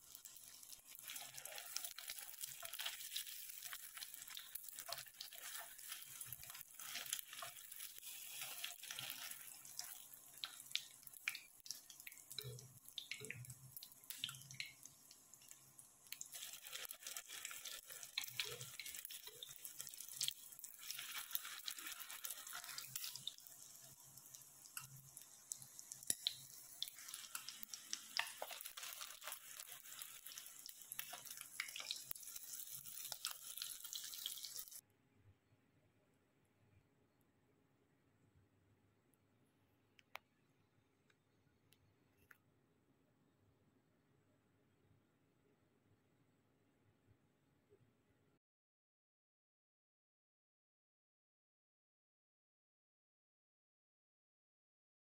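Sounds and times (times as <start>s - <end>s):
food sizzling in hot oil: 0.0s - 34.8s.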